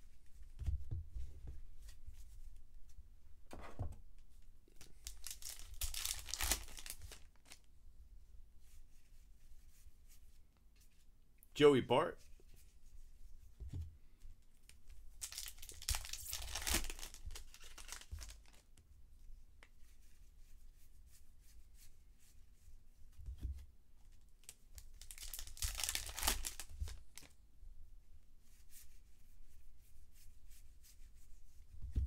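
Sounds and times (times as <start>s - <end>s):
wrappers tearing and crinkling: 4.8s - 7.6s, 15.2s - 18.6s, 24.8s - 27.3s.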